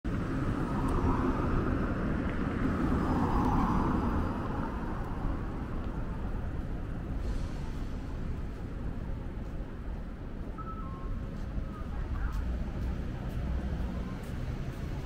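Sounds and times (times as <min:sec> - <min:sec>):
traffic hum with low rumble: 0:00.0 - 0:15.0.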